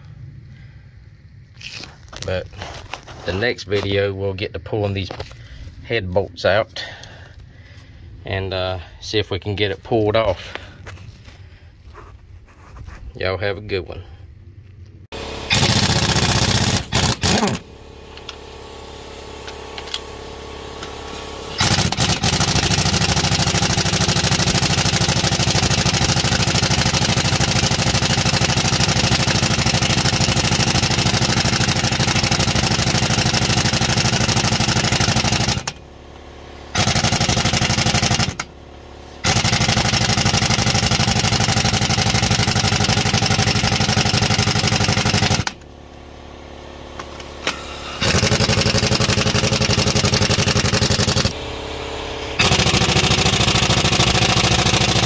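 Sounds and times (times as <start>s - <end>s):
impact wrench hammering: 15.4s - 18.4s, 19.4s - 20.1s, 20.8s - 35.8s, 36.7s - 38.5s, 39.2s - 45.6s, 47.0s - 51.4s, 52.4s - 55.0s.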